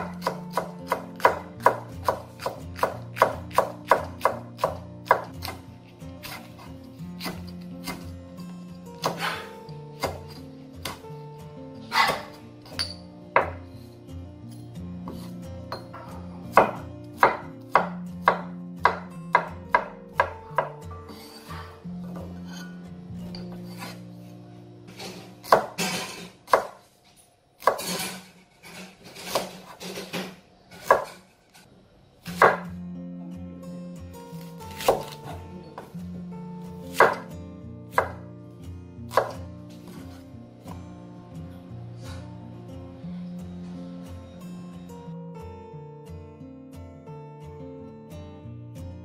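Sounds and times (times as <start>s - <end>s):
knife chopping on wooden board: 0.0s - 5.6s, 6.2s - 8.1s, 9.0s - 11.0s, 11.9s - 12.3s, 16.5s - 21.4s, 25.4s - 26.8s, 27.6s - 28.2s, 32.4s - 32.7s, 34.5s - 36.0s, 36.9s - 37.3s, 37.9s - 38.2s, 39.1s - 40.0s
soft background music: 0.0s - 49.0s.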